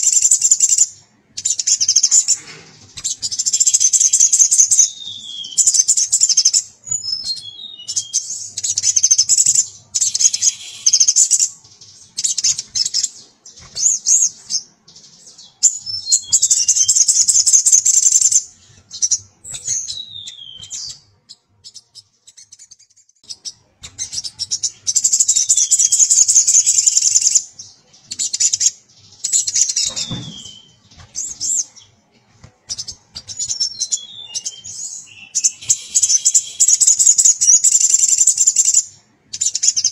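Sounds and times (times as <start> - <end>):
bird trilling song: 0.0 - 32.0, 32.6 - 39.9
bird down-slurred notes: 34.0 - 37.1.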